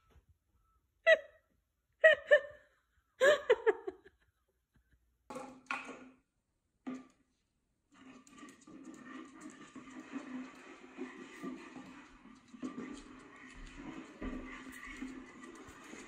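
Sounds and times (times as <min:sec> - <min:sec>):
high-pitched giggling laughter: 0:02.0 - 0:04.2.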